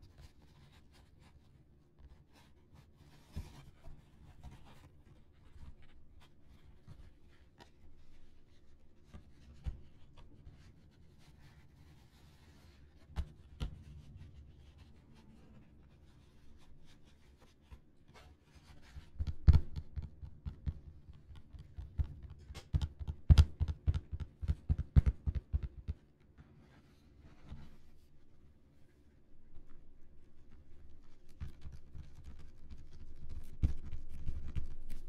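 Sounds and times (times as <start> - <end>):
fingers tapping on a ball: 19.2 - 26.0.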